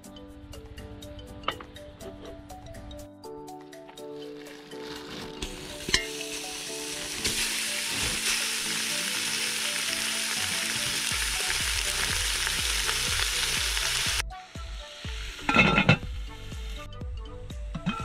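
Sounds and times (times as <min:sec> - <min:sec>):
meat sizzling in a hot pot: 0:04.4 - 0:16.8.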